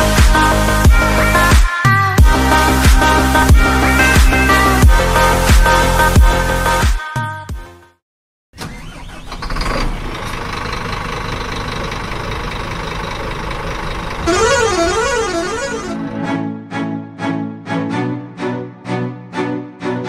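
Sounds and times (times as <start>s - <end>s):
bus engine running: 0.0s - 1.5s, 2.2s - 6.8s, 8.6s - 16.6s
warbling musical horn: 14.2s - 16.2s.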